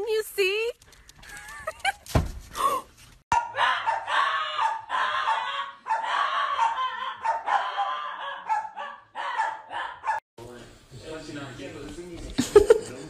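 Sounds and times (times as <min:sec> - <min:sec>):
dog barking and yipping: 0:03.3 - 0:10.2.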